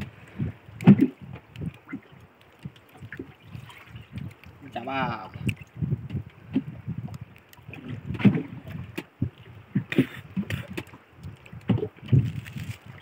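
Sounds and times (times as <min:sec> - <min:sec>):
waves slapping wooden hull: 0:00.0 - 0:13.0.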